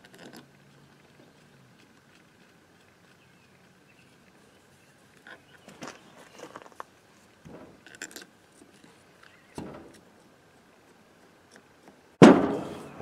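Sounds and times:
heavy housing thunk: 7.4s - 7.8s, 9.6s - 10.0s, 12.2s - 13.0s.

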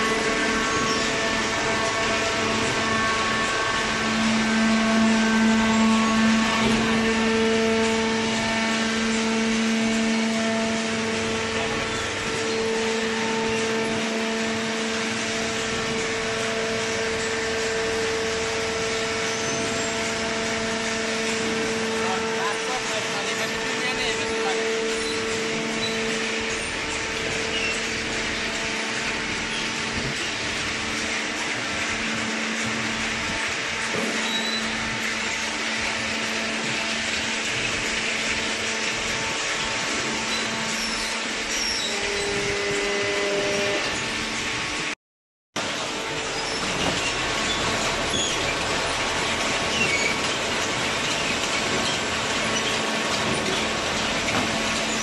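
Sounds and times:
hydraulic pump humming: 0.0s - 45.0s, 45.6s - 55.0s.

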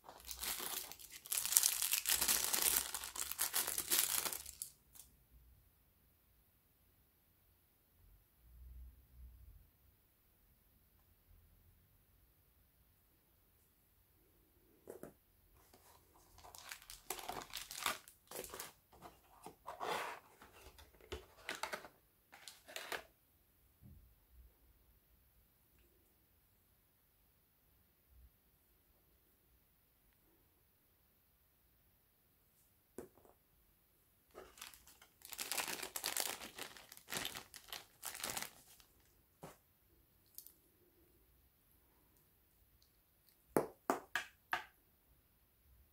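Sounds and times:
packaging rustling and crinkling: 0.0s - 5.0s, 15.6s - 23.1s, 34.3s - 39.6s.

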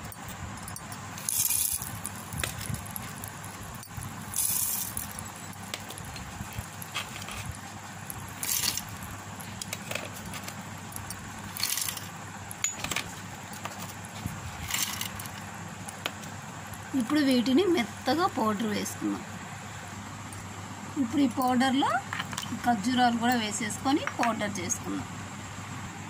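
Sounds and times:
nuts rattling in a metal jar: 0.6s - 15.5s.

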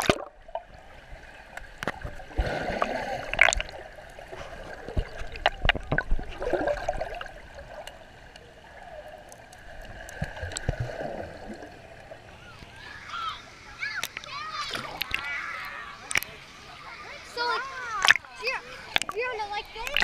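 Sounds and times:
water gurgling underwater: 0.0s - 12.2s, 18.9s - 20.0s
muffled water rush: 0.0s - 20.0s.

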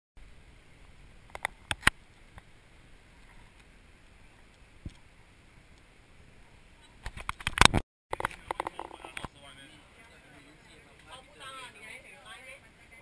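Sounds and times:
sharp clicks: 1.3s - 2.5s.

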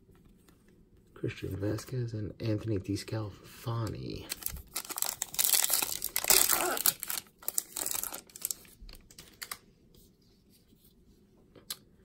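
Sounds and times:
foil wrapper tearing and crinkling: 4.3s - 9.6s.

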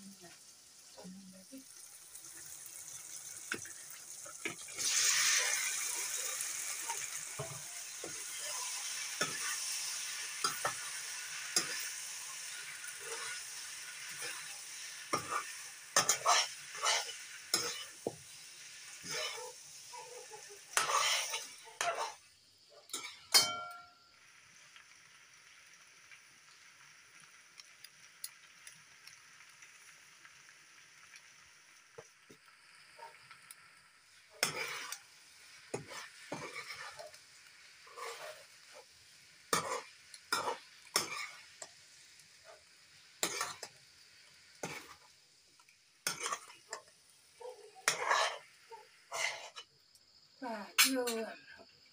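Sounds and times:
oil sizzling: 0.0s - 51.9s
metal spoon scraping a pan: 4.4s - 22.3s, 22.9s - 23.9s, 34.3s - 37.2s, 37.8s - 38.9s, 39.5s - 41.7s, 43.2s - 43.8s, 44.6s - 45.1s, 46.0s - 46.9s, 47.8s - 49.7s.

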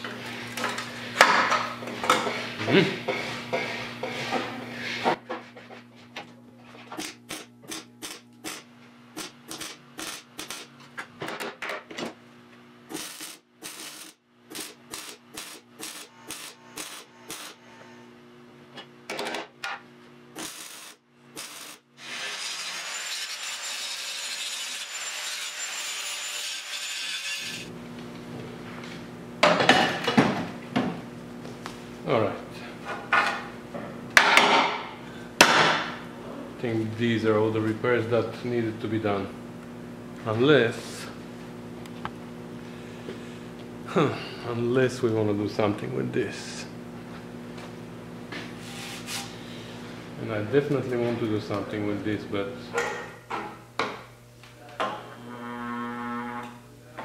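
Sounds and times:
welder crackling: 12.9s - 17.6s, 20.4s - 22.0s.

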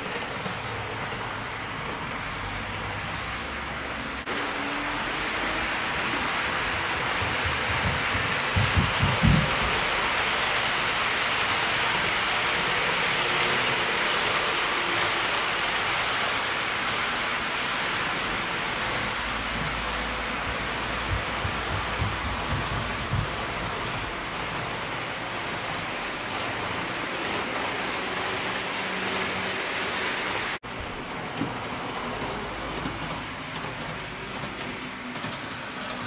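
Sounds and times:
model train rolling hiss: 4.3s - 21.0s.

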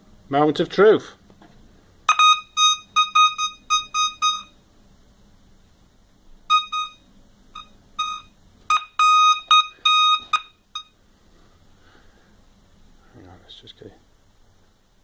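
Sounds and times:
metal detector beeping: 2.1s - 4.6s, 6.5s - 11.0s.

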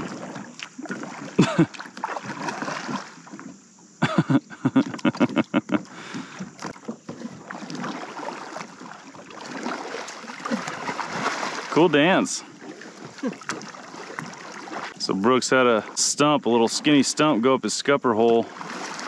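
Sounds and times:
kayak paddle splashing: 0.0s - 19.0s
paddle knocking against hull: 4.8s - 15.0s.

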